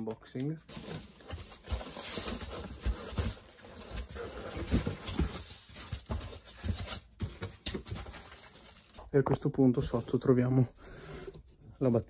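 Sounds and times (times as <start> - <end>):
cardboard scraping rustle: 0.7 - 9.0.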